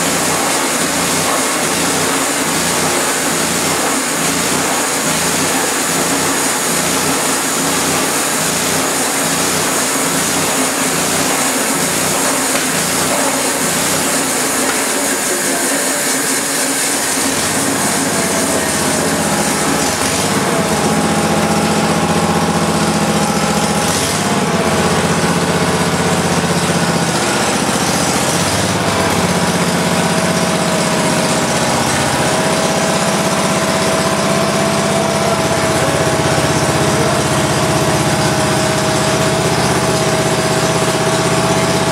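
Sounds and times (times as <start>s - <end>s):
bandsaw blade whining through timber: 0.0s - 25.4s
gas engine running: 0.0s - 41.9s.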